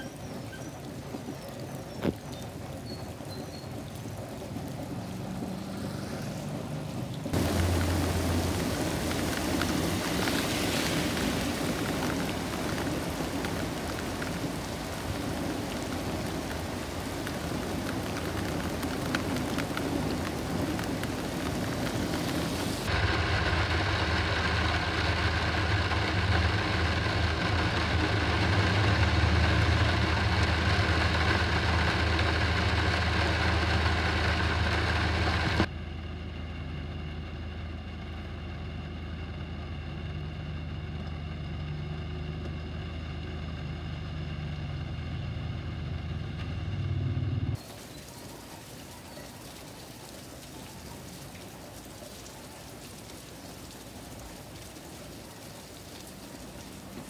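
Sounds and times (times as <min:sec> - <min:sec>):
heavy rain on pavement: 0:00.0 - 0:35.7, 0:47.6 - 0:57.0
vehicle engine hum: 0:00.0 - 0:57.0.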